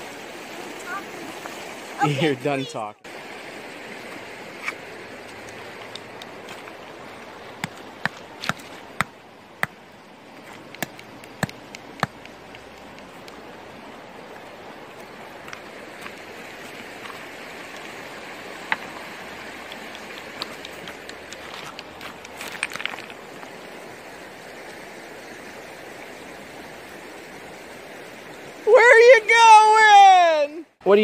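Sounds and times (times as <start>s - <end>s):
creek running over rocks: 0.0s - 31.0s
stones clacking together: 4.7s - 9.8s, 10.4s - 13.5s, 18.6s - 23.5s.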